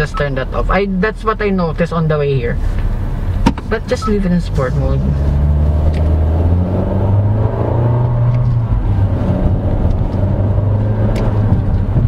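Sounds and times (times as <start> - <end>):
car engine accelerating: 2.6 - 12.0.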